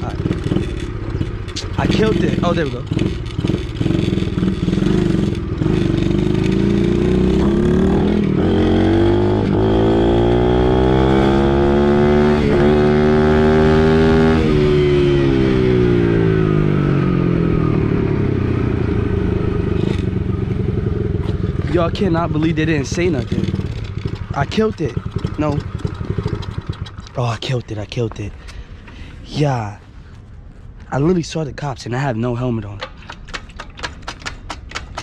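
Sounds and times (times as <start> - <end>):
dirt bike engine revving: 0.0 - 27.2.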